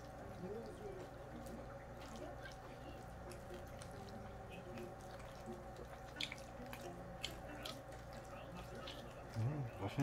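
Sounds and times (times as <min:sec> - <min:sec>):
wet chewing: 0:00.0 - 0:10.0
lip smacks: 0:02.0 - 0:09.4.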